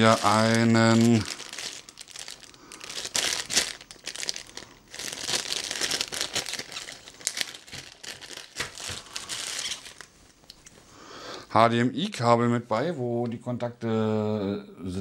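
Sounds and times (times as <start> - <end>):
plastic bag crinkling: 0.0 - 10.2.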